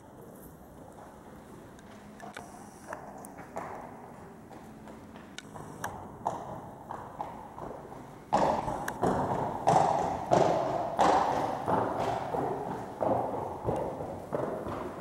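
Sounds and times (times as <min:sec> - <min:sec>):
pony hooves on sand: 0:03.4 - 0:15.0.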